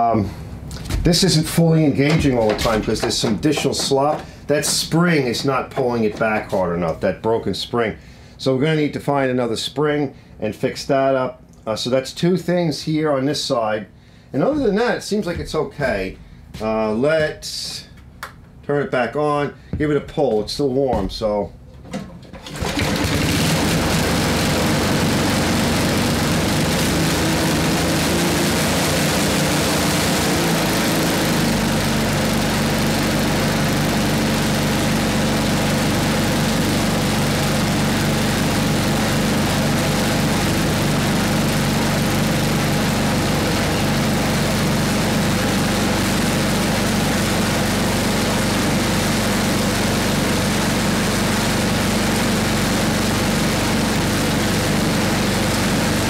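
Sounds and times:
snowblower engine running: 2.0s - 4.5s, 22.4s - 56.0s.

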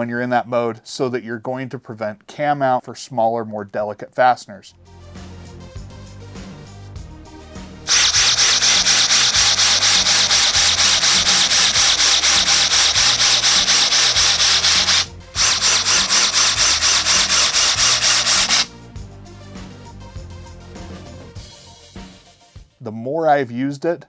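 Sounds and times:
cordless drill pulsing: 7.9s - 18.7s.

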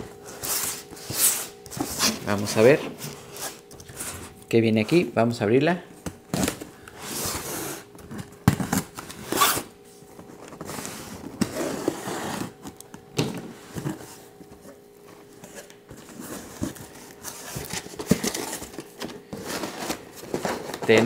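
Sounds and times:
cardboard tearing and rustling: 6.3s - 12.8s, 15.4s - 21.0s.

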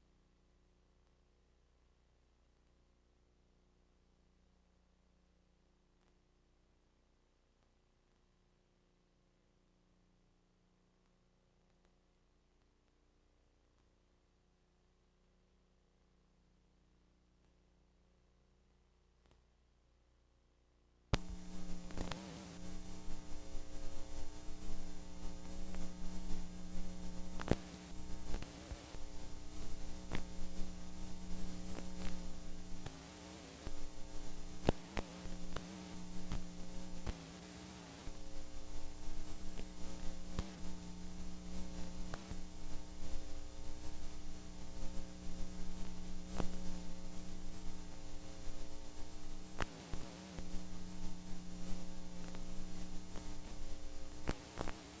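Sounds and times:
electrical hum with hiss: 0.0s - 55.0s
crackling clicks: 21.1s - 55.0s.

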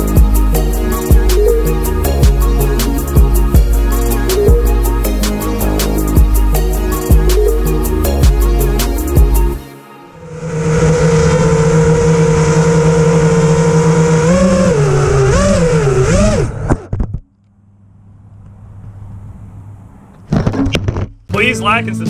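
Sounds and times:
quadcopter buzzing hum: 0.0s - 16.9s.

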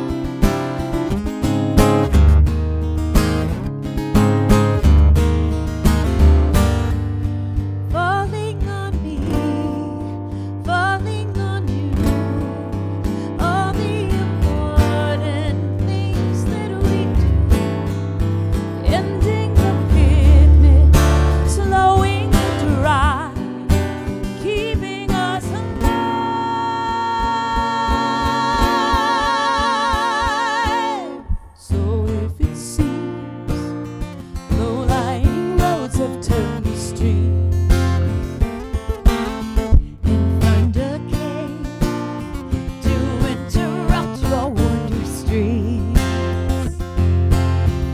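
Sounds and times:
acoustic guitar: 0.0s - 47.9s
woman singing lead: 7.8s - 18.0s, 18.7s - 38.0s, 39.5s - 46.9s
woman singing harmony: 7.9s - 17.5s, 18.8s - 23.7s, 24.3s - 33.7s, 34.4s - 37.5s, 40.4s - 41.7s, 42.8s - 46.7s.

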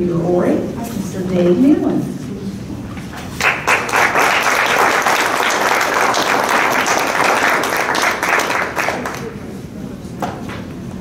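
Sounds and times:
audience applauding: 3.3s - 9.5s.

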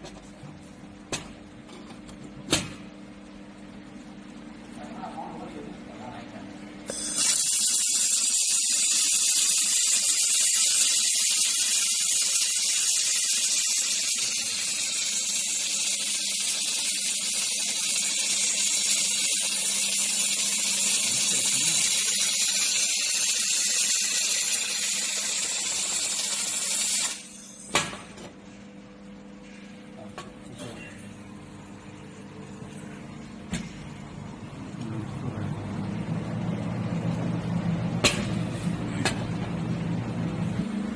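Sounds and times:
laser welder hissing: 6.9s - 27.9s.

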